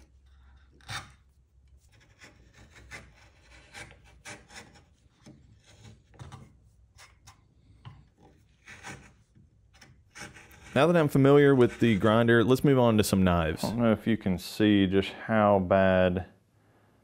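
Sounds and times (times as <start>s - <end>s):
chisel scraping wood: 0.0s - 12.4s.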